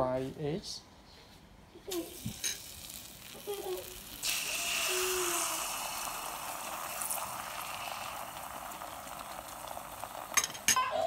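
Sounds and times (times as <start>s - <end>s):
egg sizzling in a pan: 2.0s - 10.8s.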